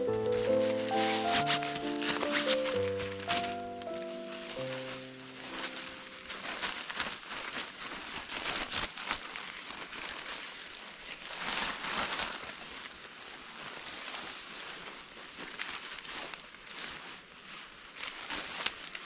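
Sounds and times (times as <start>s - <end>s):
rustling and crackling: 0.0s - 19.0s.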